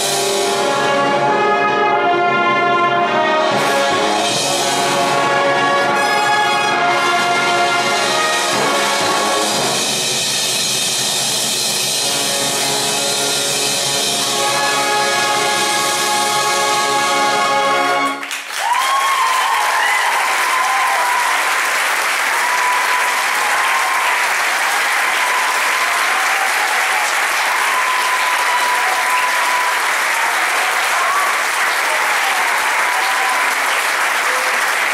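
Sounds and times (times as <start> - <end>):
brass band chord: 0.0 - 18.2
audience applause: 18.0 - 34.9.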